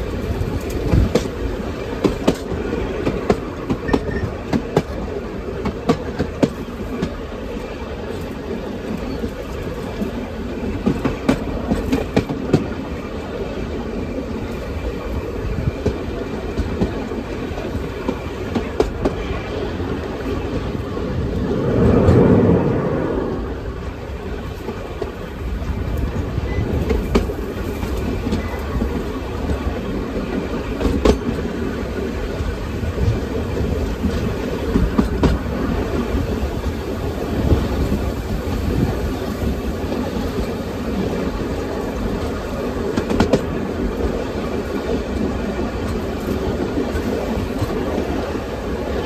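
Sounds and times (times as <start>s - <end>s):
train wheels rumbling on track: 0.0s - 49.0s
clacks over rail joints: 0.2s - 12.8s, 15.6s - 20.7s, 26.7s - 31.7s, 42.1s - 48.4s.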